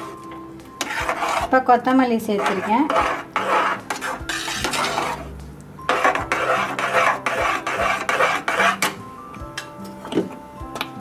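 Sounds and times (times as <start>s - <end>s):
metal spoon scraping a pot: 0.8s - 1.6s, 2.2s - 9.0s.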